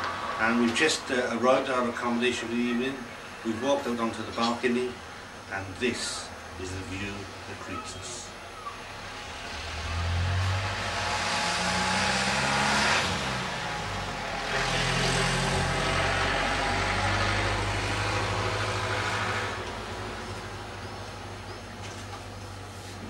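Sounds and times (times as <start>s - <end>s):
vehicles passing: 0.0s - 22.8s.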